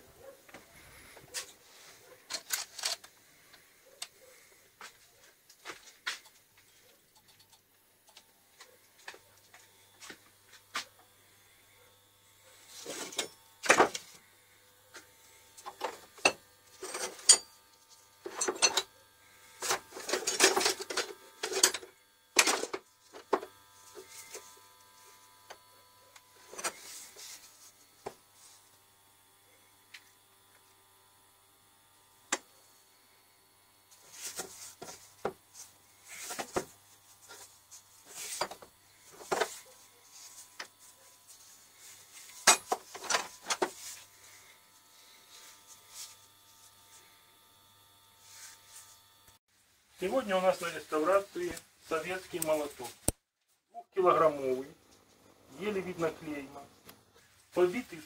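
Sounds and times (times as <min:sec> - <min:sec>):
metal tools clanking and scraping: 0:15.8 - 0:17.6, 0:18.3 - 0:18.9, 0:20.0 - 0:22.7, 0:42.4 - 0:43.6.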